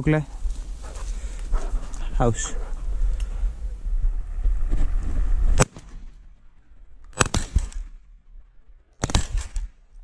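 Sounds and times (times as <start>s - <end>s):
wind rumble on microphone: 0.0s - 10.0s
sharp cracks: 5.5s - 6.3s, 7.0s - 8.1s, 9.0s - 10.0s.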